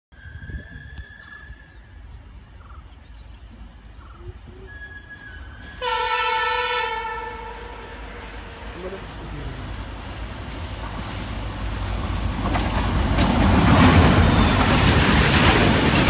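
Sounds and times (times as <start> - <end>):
train horn: 5.7 - 8.6.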